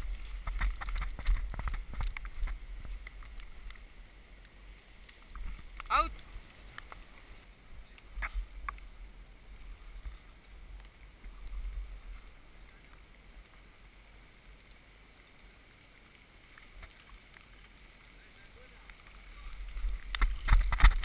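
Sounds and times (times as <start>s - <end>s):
wind rumble: 0.0s - 12.6s.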